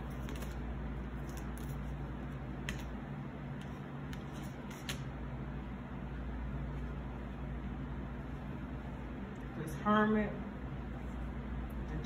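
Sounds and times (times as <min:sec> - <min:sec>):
cards shuffling clicks: 0:00.0 - 0:03.0, 0:03.6 - 0:05.1
steady low hum: 0:00.0 - 0:12.0.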